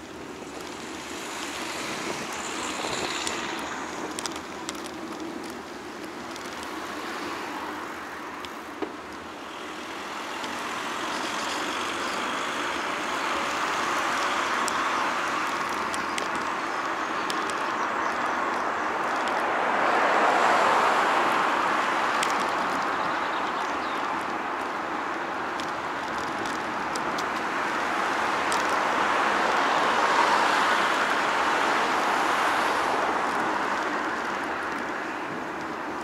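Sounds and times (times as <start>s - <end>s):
passing vehicles rushing: 0.0s - 36.0s
faint clicks: 1.4s - 7.3s, 8.3s - 9.3s, 13.4s - 19.4s, 25.5s - 27.8s.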